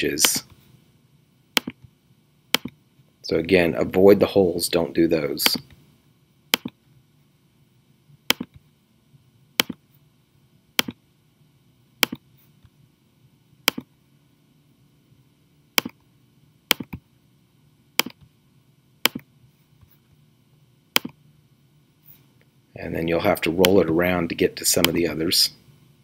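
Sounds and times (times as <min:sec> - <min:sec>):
computer mouse clicking: 0:01.6 - 0:01.9, 0:02.5 - 0:02.8, 0:06.5 - 0:06.8, 0:08.3 - 0:08.6, 0:09.6 - 0:09.8, 0:10.8 - 0:11.0, 0:12.0 - 0:12.2, 0:13.7 - 0:13.9, 0:15.8 - 0:16.0, 0:16.7 - 0:17.0, 0:18.0 - 0:18.3, 0:19.0 - 0:19.3, 0:20.9 - 0:21.2.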